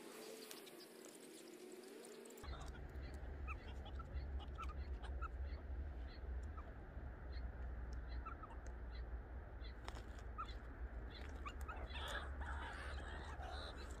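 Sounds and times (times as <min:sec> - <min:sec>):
low steady rumble: 0:02.4 - 0:14.0
meerkats chirping: 0:02.4 - 0:14.0
harsh noisy animal call: 0:11.4 - 0:14.0.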